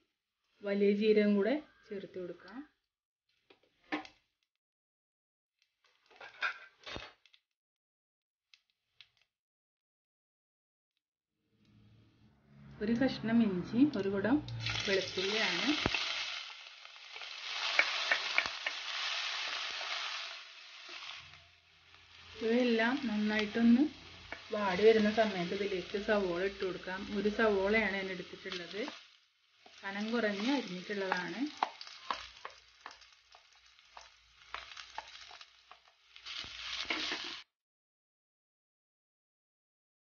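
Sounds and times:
food sizzling in oil: 14.5s - 37.4s
spatula stirring: 17.1s - 22.2s, 28.4s - 37.4s.

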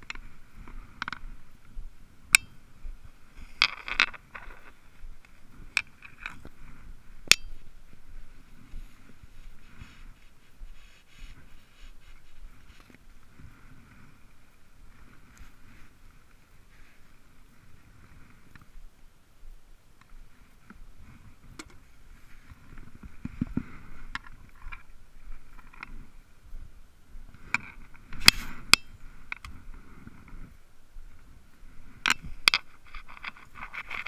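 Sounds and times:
fabric rubbing on microphone: 7.8s - 18.5s, 27.4s - 32.0s, 32.6s - 34.0s.

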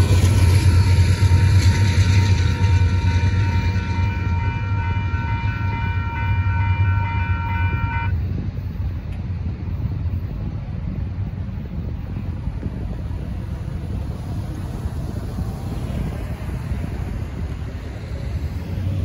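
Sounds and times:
railroad crossing bell ringing: 0.0s - 8.2s
freight train rumble: 0.0s - 19.0s.

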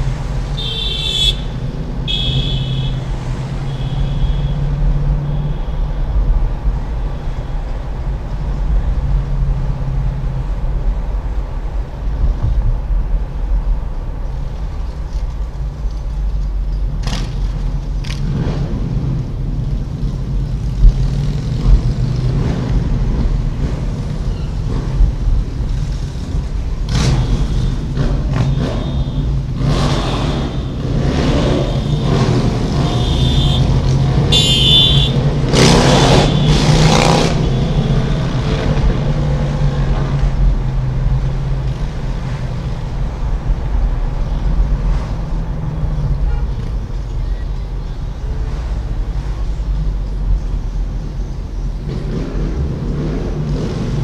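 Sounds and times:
car engine and road noise: 0.0s - 54.0s
motorcycle engines surging: 20.0s - 43.8s.

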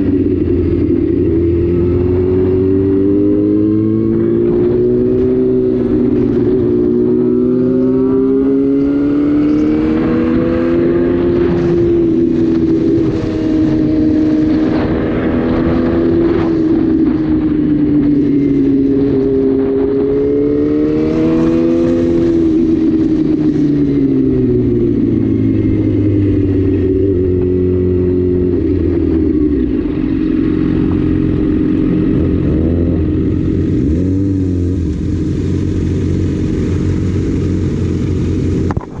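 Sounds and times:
motorcycle engine revving: 0.0s - 39.0s.

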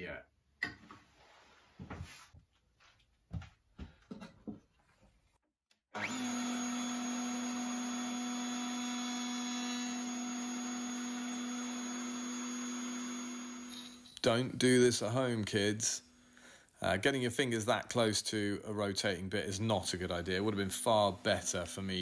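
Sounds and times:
table router running: 6.0s - 14.0s.

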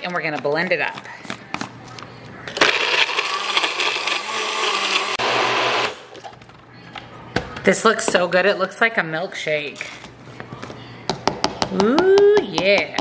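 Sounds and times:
blender running: 2.6s - 6.1s.

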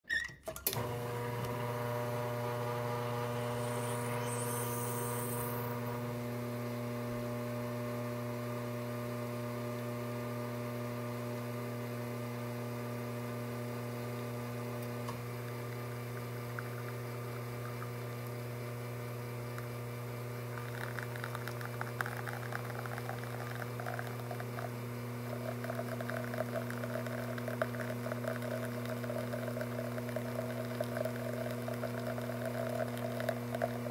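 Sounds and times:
espresso machine pump humming: 0.6s - 33.9s
espresso crackling spatter: 0.8s - 6.1s, 14.0s - 33.9s.

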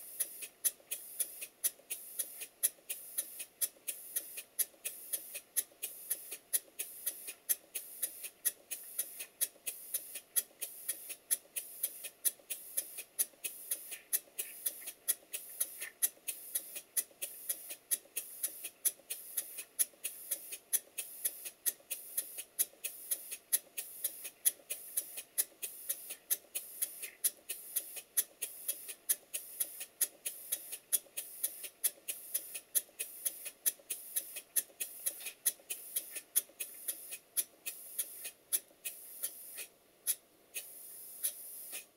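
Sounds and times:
steam engine exhaust puffs: 0.0s - 41.9s.

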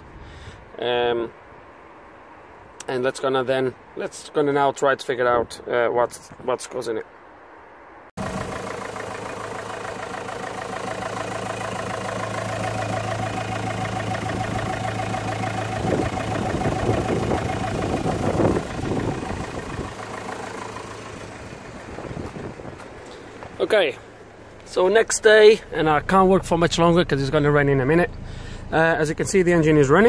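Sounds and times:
diesel engine idling: 8.2s - 30.0s.

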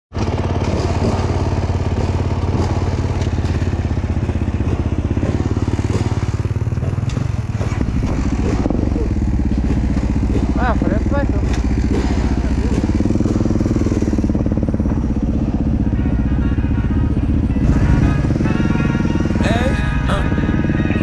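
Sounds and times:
motorcycle engine running: 0.1s - 21.0s.

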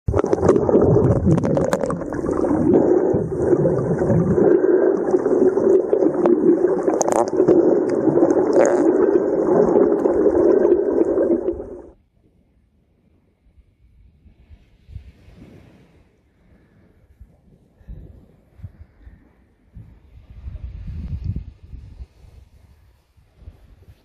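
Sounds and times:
muffled underwater rushing: 0.0s - 12.0s
clicks and pops: 0.1s - 11.9s.

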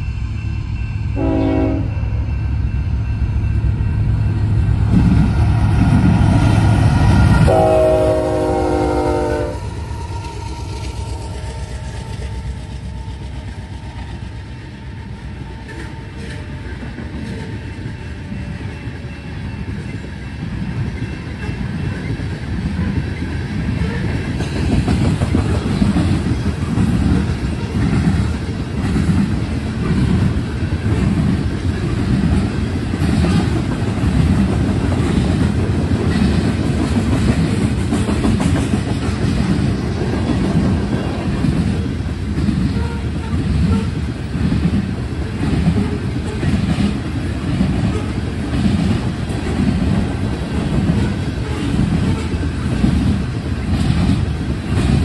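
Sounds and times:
train low rumble: 0.0s - 55.0s
train wheels clattering over rail joints: 20.7s - 55.0s.

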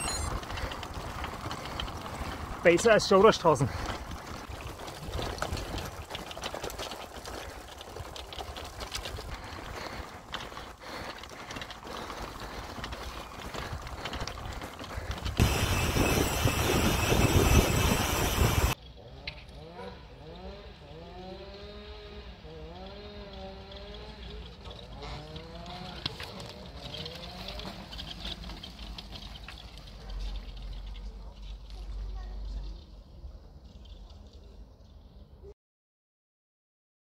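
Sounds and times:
bike rattling over cobblestones: 0.0s - 35.5s
wind on microphone: 15.4s - 18.8s.

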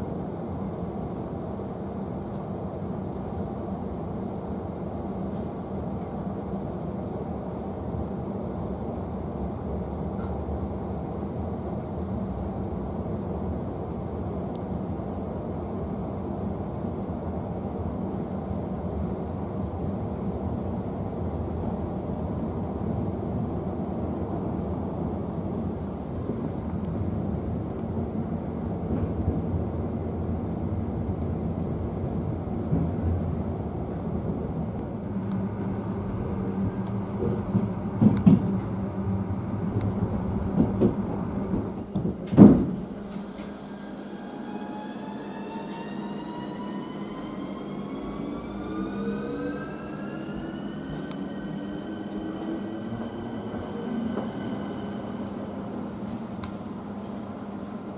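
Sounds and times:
train rumble inside coach: 0.0s - 57.9s
traction motors whining: 42.8s - 57.2s.

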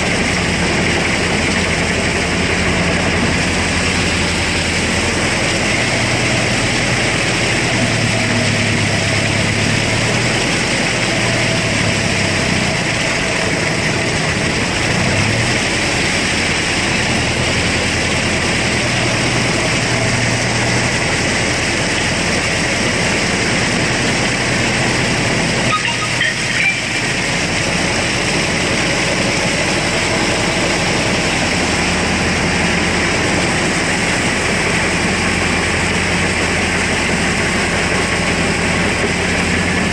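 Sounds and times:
blades churning wet mud: 0.0s - 39.9s
tractor diesel engine running: 0.0s - 39.9s.

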